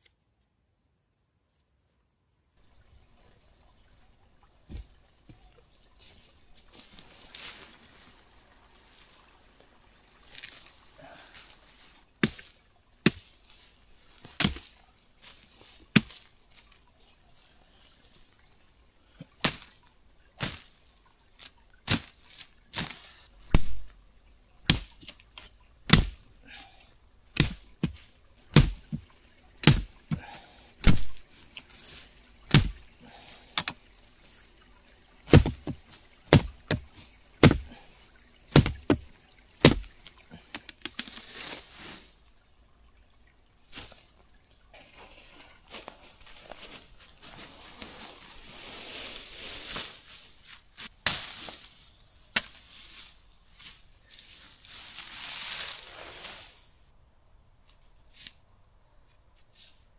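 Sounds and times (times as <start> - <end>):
machete chopping brush: 12.2 - 13.4, 14.3 - 14.8, 16.0 - 16.3, 19.4 - 19.8, 20.4 - 20.7, 21.9 - 23.9, 24.7 - 26.2, 27.4 - 31.3, 32.5 - 32.9, 35.3 - 37.8, 38.5 - 40.0, 50.8 - 51.7, 52.3 - 53.0.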